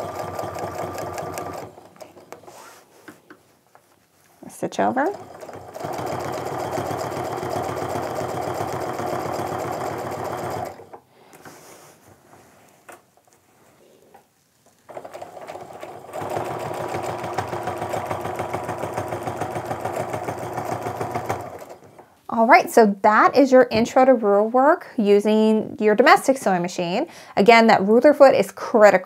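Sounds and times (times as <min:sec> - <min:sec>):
sewing machine stitching: 0:00.0 - 0:02.5, 0:04.8 - 0:11.0, 0:14.9 - 0:22.0.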